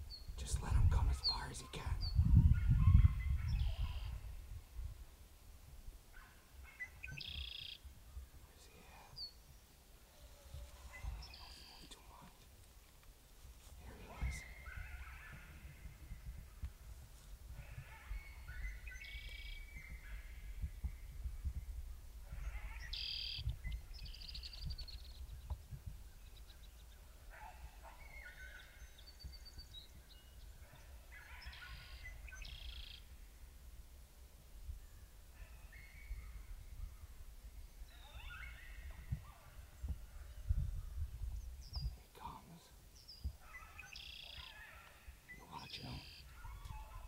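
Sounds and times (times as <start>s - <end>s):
wind rumble: 1.9s - 6.6s, 13.2s - 27.8s, 38.5s - 42.3s.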